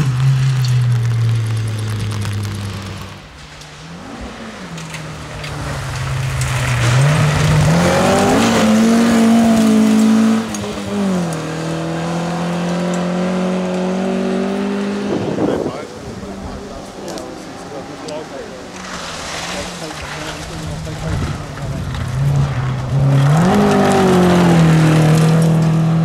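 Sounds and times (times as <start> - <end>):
rally car engine at full throttle: 0.0 - 26.0.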